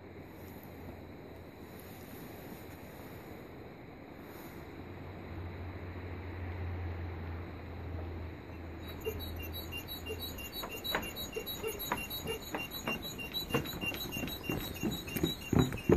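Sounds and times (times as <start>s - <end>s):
short high squeaks: 8.6s - 15.9s
running footsteps on wooden planks: 8.9s - 15.9s.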